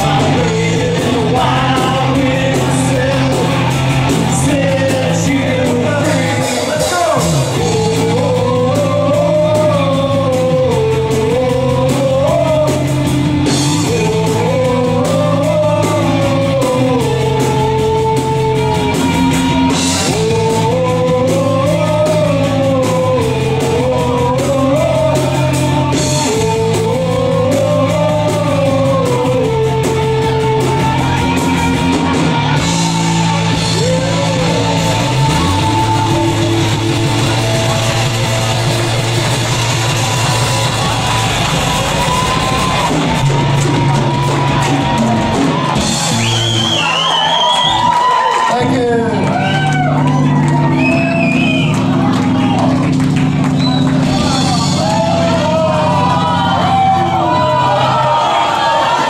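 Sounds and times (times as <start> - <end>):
bending lead guitar melody: 0.0 - 46.3, 48.6 - 58.4
bass guitar: 0.0 - 59.0
drum kit: 0.0 - 59.0
electric guitars: 0.0 - 59.0.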